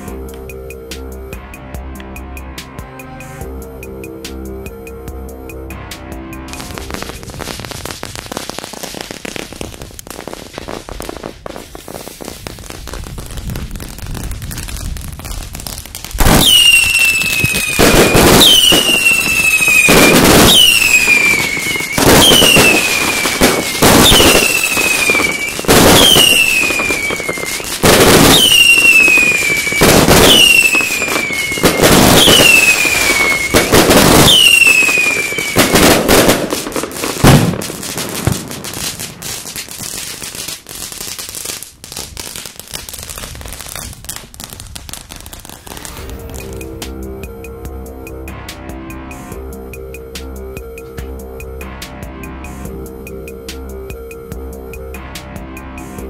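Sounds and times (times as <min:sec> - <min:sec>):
fireworks volleys firing: 0:06.5 - 0:46.7
firework crackling: 0:06.5 - 0:47.0
firework bang: 0:06.6 - 0:40.1
falling firework whistle: 0:16.2 - 0:40.1, 0:45.2 - 0:47.3.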